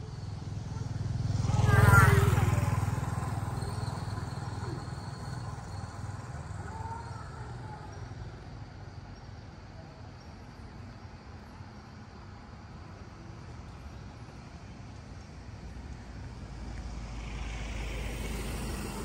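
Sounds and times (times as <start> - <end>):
vehicle engine rumbling: 0.0 - 8.5.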